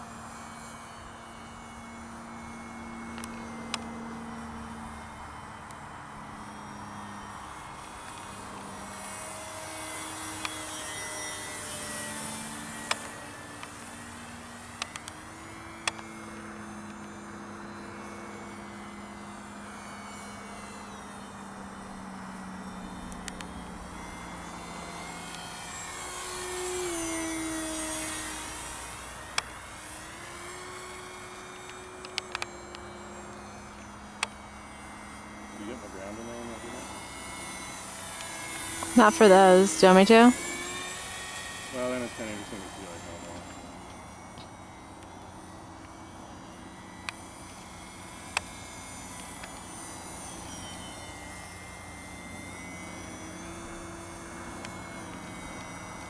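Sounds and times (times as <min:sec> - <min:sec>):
model plane motor whining: 0:00.0 - 0:56.0.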